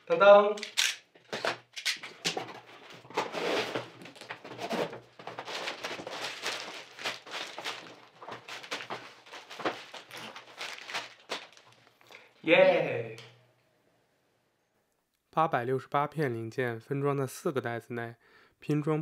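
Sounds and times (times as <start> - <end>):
plastic bags rustling: 2.4 - 12.3.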